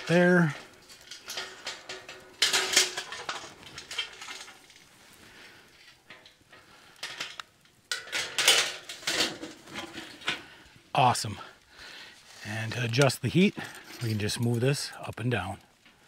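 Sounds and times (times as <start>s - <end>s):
sheet-metal panels clanking: 1.0s - 4.7s.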